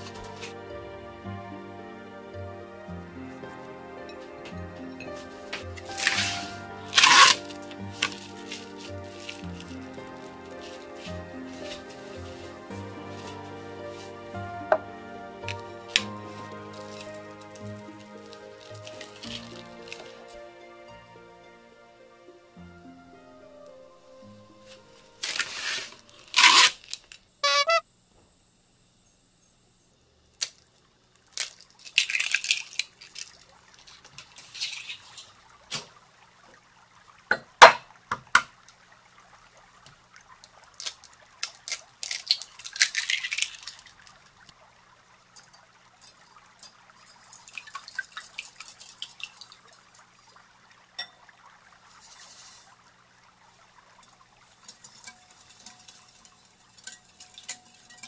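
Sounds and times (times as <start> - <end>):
sugar pouring into bowl: 5.0 - 14.5
cling wrap crinkling and tearing: 5.1 - 20.4, 25.2 - 27.7, 30.4 - 35.4, 40.6 - 44.2
eggs cracking on glass bowl: 30.4 - 33.5, 40.6 - 44.1.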